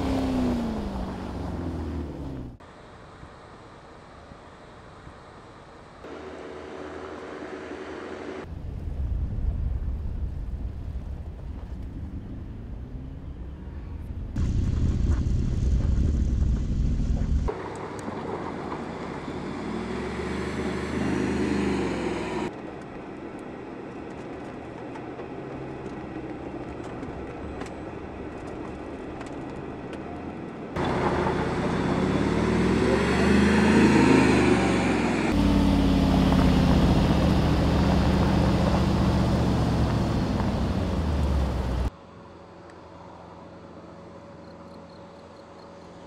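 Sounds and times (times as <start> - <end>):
suv engine revving: 0.0 - 2.6, 19.3 - 22.5, 30.8 - 41.9.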